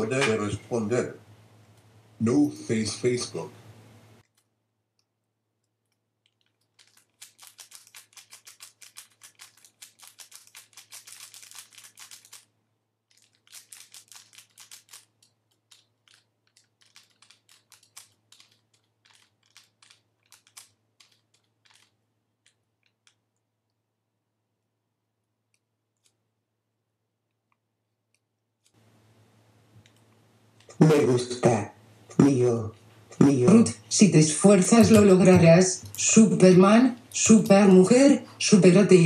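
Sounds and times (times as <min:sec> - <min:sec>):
typing on a keyboard: 0:06.2 - 0:12.5, 0:13.1 - 0:23.2.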